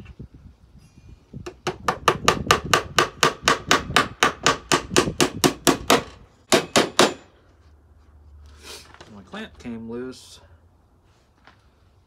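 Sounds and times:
hammer driving nails into wood: 0:01.4 - 0:07.3.

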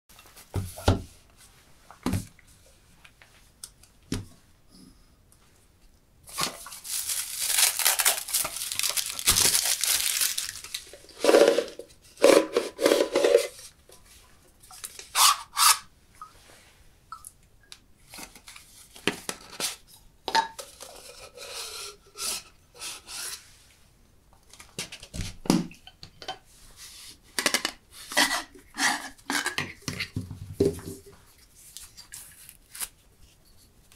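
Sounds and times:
cellophane crinkling and tearing: 0:06.3 - 0:11.7, 0:31.7 - 0:33.0.

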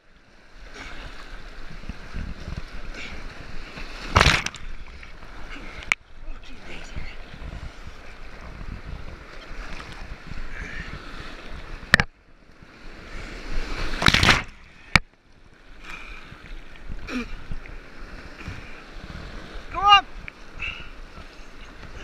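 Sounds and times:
whitewater rushing and splashing: 0:00.5 - 0:15.1, 0:15.7 - 0:22.0
paddle strokes: 0:00.6 - 0:22.0
loud splash: 0:04.0 - 0:04.9, 0:13.7 - 0:14.7.

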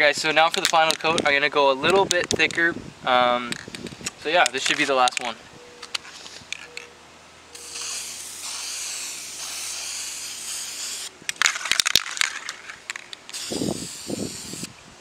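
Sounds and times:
spray paint can spraying: 0:07.6 - 0:14.7.

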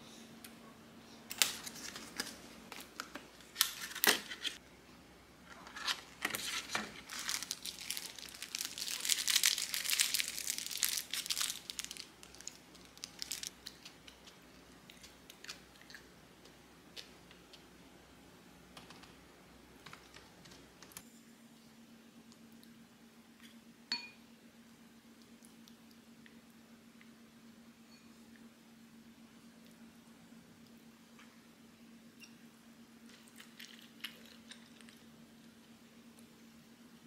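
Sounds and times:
wrapping paper crinkling: 0:01.4 - 0:04.6, 0:05.7 - 0:15.6.

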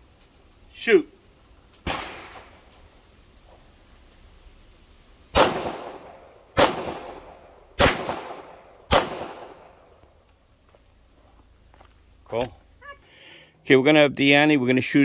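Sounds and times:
pistol shots with echo: 0:05.4 - 0:09.8.

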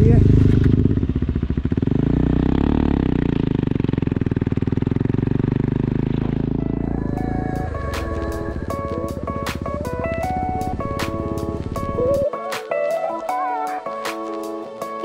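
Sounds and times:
motorcycle engine running: 0:00.0 - 0:12.3
road noise: 0:00.0 - 0:12.3
guitar music: 0:06.6 - 0:15.0.

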